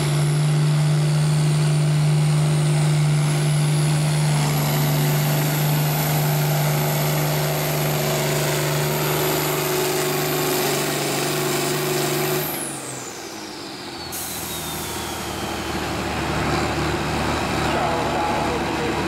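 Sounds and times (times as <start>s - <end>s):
diesel engine under full load: 0.0s - 19.0s
turbo whistle falling in pitch: 14.2s - 15.8s.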